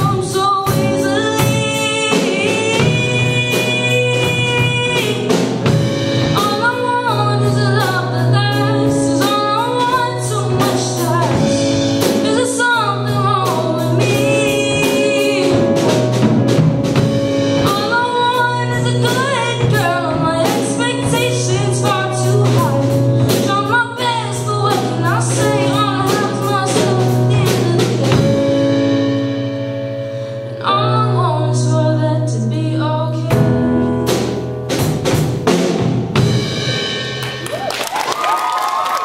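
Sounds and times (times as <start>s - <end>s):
person singing: 0.0s - 5.5s, 6.4s - 16.2s, 17.6s - 28.5s
drum kit beat: 0.0s - 29.8s, 33.3s - 39.0s
electric keyboard chords: 0.0s - 37.7s.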